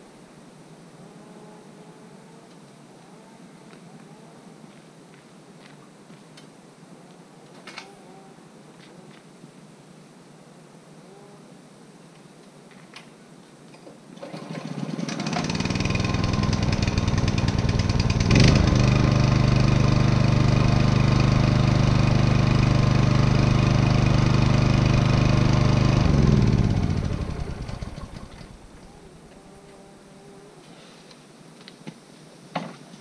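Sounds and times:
generator engine running: 14.4 - 28.9.

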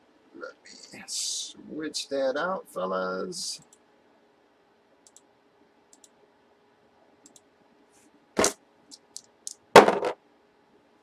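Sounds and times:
faint clicks: 5.0 - 5.3, 5.9 - 6.2, 7.2 - 7.5
dice clattering: 8.4 - 10.2
knock on tabletop: 9.8 - 10.2.

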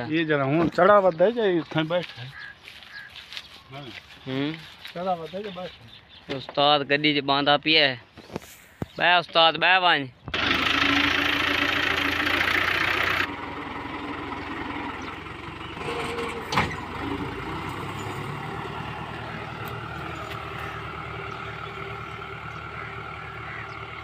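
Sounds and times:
tractor diesel engine running: 10.3 - 24.0.

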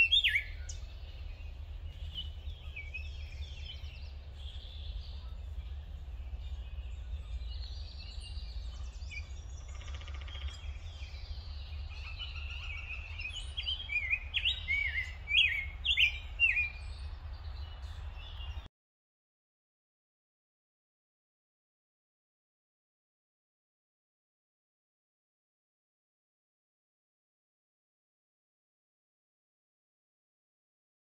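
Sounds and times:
bird singing warbled whistles: 0.0 - 0.8, 11.9 - 16.8
steady low rumble: 0.0 - 18.7.

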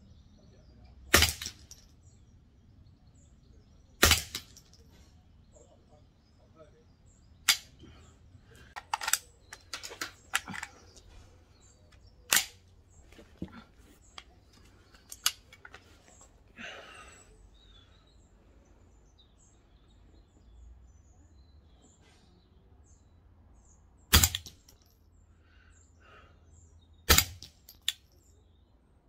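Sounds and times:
rifle shots: 1.1 - 1.8, 4.0 - 4.7, 12.3 - 12.6, 24.1 - 24.5, 27.1 - 27.5.

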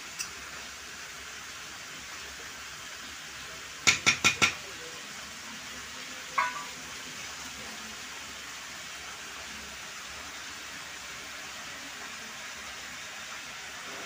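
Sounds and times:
steel bowl clinking on pan: 6.4 - 6.8.

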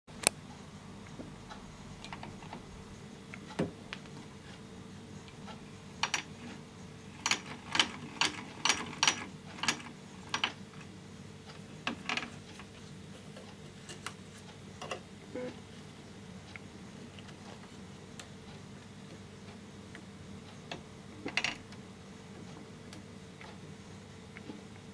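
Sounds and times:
sewing machine mechanism clicking: 6.0 - 10.6.

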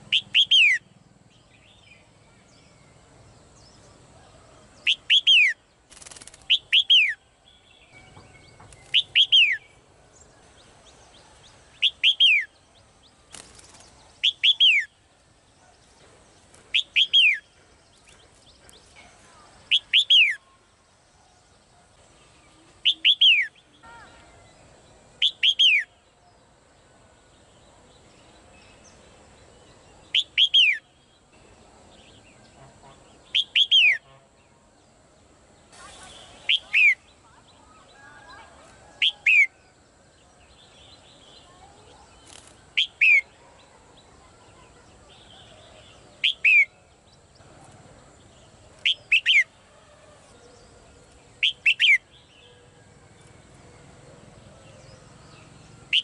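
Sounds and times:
bird calling with descending notes: 22.5 - 26.0, 35.8 - 39.7.

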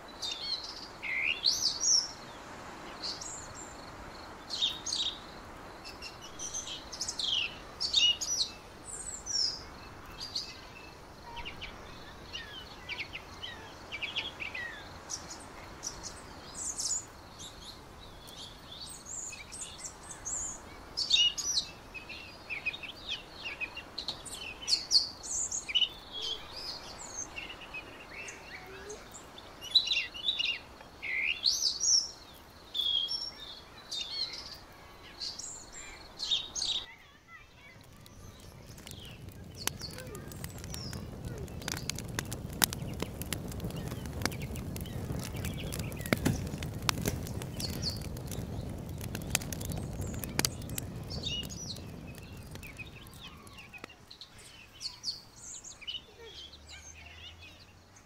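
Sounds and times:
faint outdoor background: 0.0 - 58.0
small songbirds chirping: 0.0 - 58.0.

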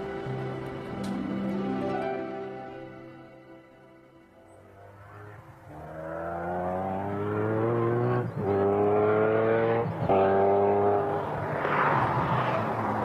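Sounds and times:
supercar engine accelerating: 4.6 - 13.0.

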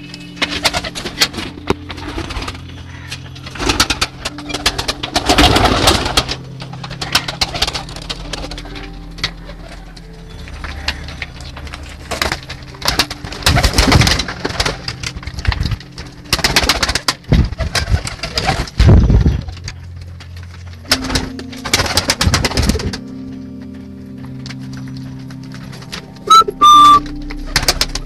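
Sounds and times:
pigeons cooing: 0.0 - 19.9, 26.2 - 27.6
low drone: 0.0 - 28.0
wing flapping and scuffling: 0.1 - 28.0.

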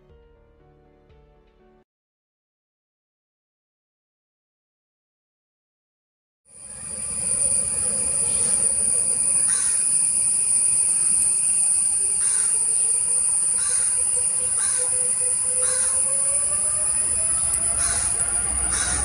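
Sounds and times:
jet engines whining: 6.6 - 19.0
harsh bird calls: 6.9 - 19.0.

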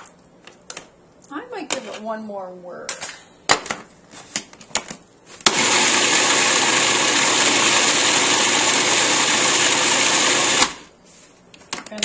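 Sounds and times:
food processor motor running: 5.5 - 10.9.

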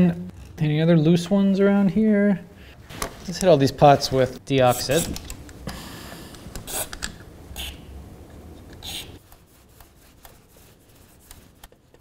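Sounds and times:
rubbing and handling noises: 8.6 - 12.0.

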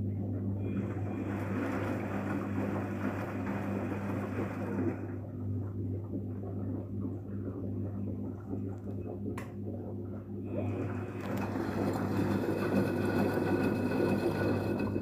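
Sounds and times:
low machine hum: 0.0 - 15.0
water churning in washing machine: 0.0 - 15.0.

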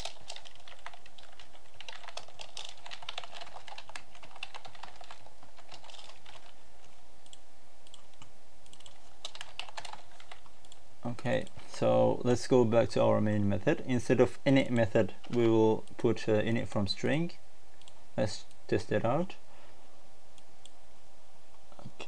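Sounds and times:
typing on computer keyboard: 0.0 - 6.6, 7.9 - 10.5.

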